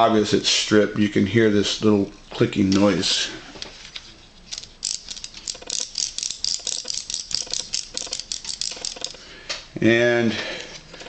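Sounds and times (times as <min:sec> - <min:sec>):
servo gears clicking rapidly: 0:04.5 - 0:09.2.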